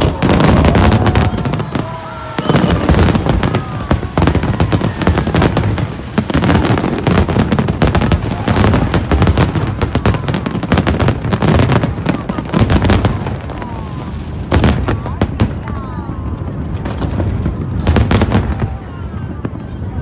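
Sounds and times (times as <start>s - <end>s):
fireworks bangs and crackling: 0.0s - 20.0s.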